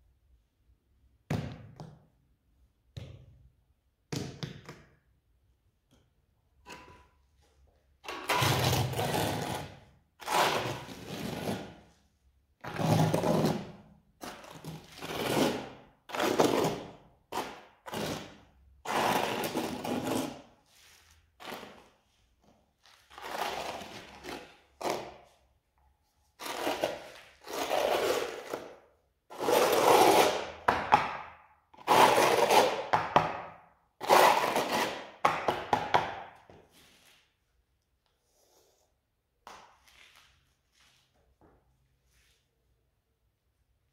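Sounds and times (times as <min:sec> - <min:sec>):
trowel scraping adhesive on concrete: 0:06.7 - 0:12.0, 0:12.6 - 0:22.0, 0:22.9 - 0:25.4, 0:26.2 - 0:30.9, 0:31.8 - 0:33.4, 0:34.0 - 0:35.5.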